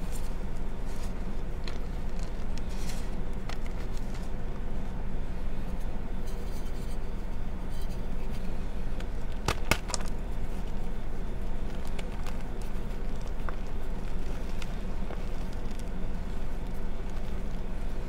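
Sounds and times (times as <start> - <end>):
chalk crunching: 0.0 - 4.4
chalk blocks snapping: 9.4 - 10.2.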